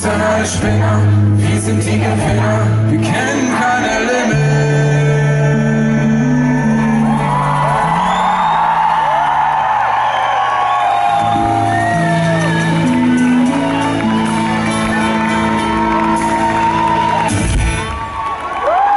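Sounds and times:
audience singing along: 0:00.0 - 0:08.6
live rock band holding chords: 0:00.0 - 0:18.0
audience whooping: 0:06.1 - 0:18.9.

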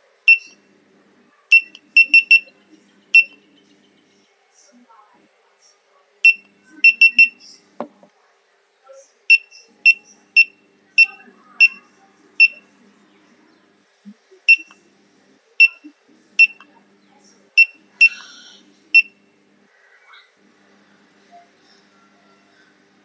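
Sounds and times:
high electronic beeps: 0:01.5 - 0:02.5, 0:03.2 - 0:03.4, 0:06.3 - 0:07.4.

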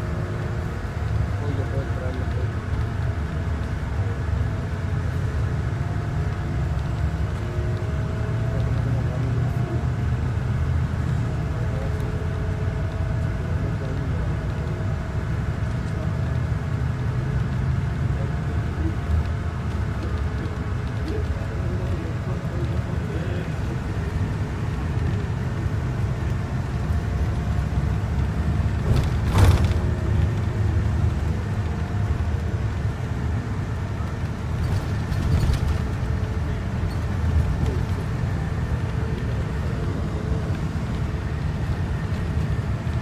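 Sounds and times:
road and engine rumble: 0:00.0 - 0:43.0.

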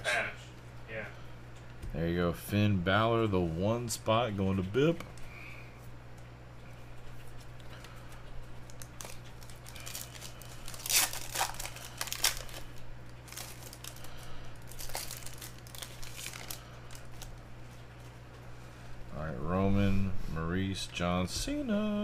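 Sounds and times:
foil wrapper tearing and crinkling: 0:08.6 - 0:17.4.

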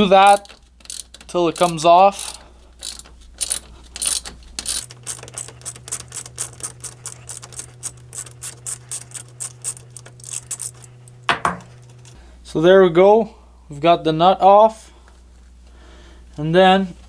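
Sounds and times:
hand ratchet clicking: 0:00.0 - 0:11.2.

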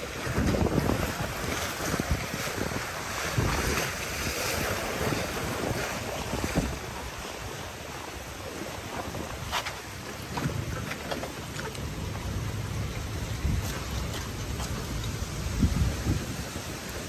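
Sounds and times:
wind buffeting microphone: 0:00.0 - 0:07.8, 0:11.6 - 0:17.0
waves lapping against sea wall: 0:00.0 - 0:17.0.

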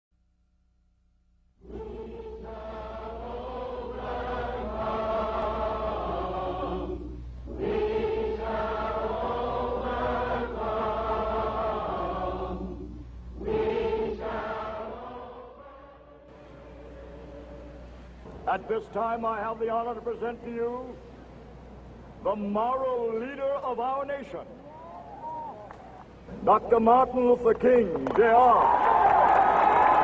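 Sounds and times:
group singing long notes: 0:01.6 - 0:18.4.

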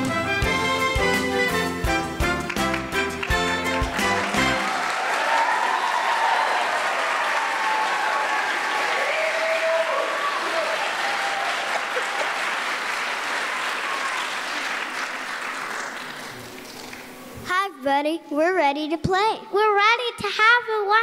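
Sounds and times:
audience applauding: 0:02.1 - 0:17.4.

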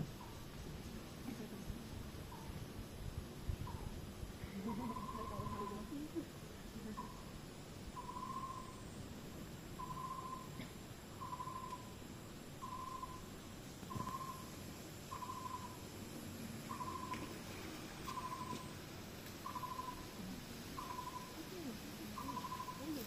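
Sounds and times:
animal hooting call: 0:18.1 - 0:18.7, 0:19.4 - 0:20.2, 0:20.8 - 0:23.0.

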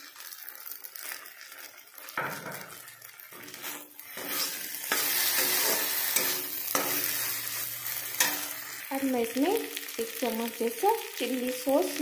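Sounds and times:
food sizzling in oil: 0:00.0 - 0:12.0
metal spatula scraping a pan: 0:01.0 - 0:08.9.

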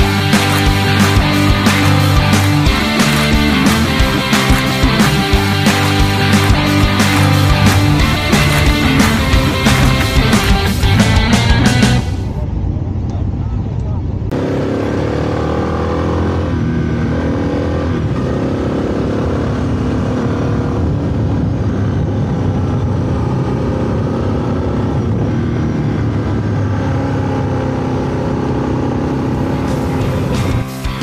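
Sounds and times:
motorcycle engine revving: 0:00.0 - 0:30.8
wind noise on microphone: 0:19.5 - 0:26.8.

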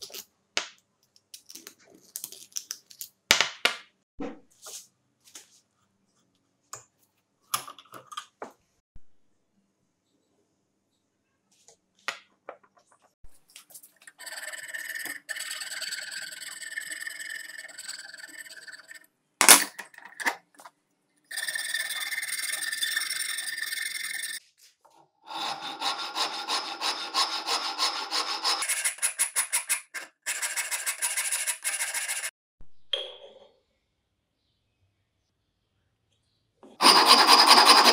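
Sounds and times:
file rasping on wood: 0:25.3 - 0:32.3, 0:36.8 - 0:37.9
hand saw cutting wood: 0:25.3 - 0:32.3, 0:36.8 - 0:37.9.

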